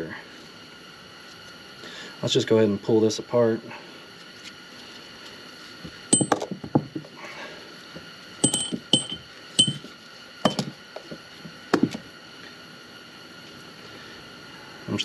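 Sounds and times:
metal parts clinking: 0:06.2 - 0:06.5, 0:08.4 - 0:09.9.

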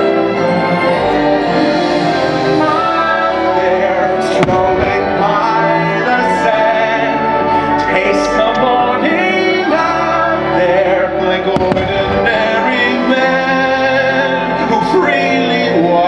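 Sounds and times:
music with singing over speakers: 0:02.0 - 0:16.0
firework bang: 0:04.4 - 0:05.2, 0:11.6 - 0:12.3.

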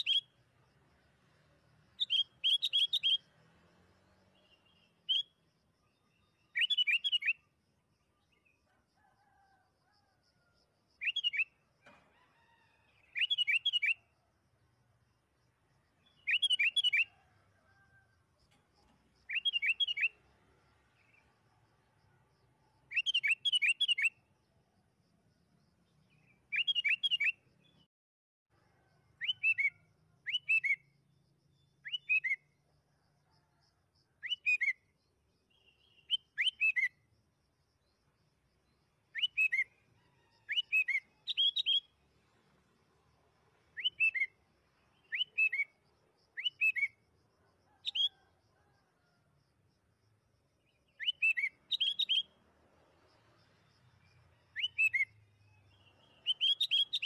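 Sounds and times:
bird whistling song: 0:00.0 - 0:00.3, 0:02.0 - 0:03.3, 0:04.6 - 0:05.4, 0:06.3 - 0:07.4, 0:11.0 - 0:11.6, 0:13.1 - 0:14.0, 0:16.2 - 0:17.1, 0:19.3 - 0:20.2, 0:22.9 - 0:24.2, 0:26.5 - 0:27.4, 0:29.2 - 0:30.8, 0:31.8 - 0:32.5, 0:34.2 - 0:34.8, 0:35.5 - 0:37.0, 0:39.1 - 0:39.8, 0:40.5 - 0:41.9, 0:43.8 - 0:44.4, 0:45.0 - 0:45.7, 0:46.4 - 0:47.0, 0:51.0 - 0:52.3, 0:54.5 - 0:57.0.

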